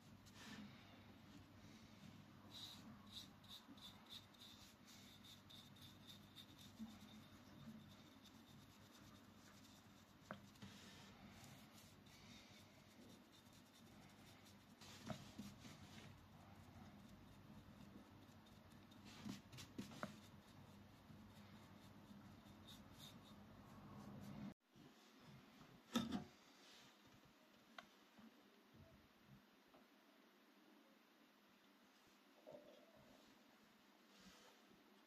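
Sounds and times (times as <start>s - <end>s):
paintbrush brushing on wood: 0.0s - 24.6s.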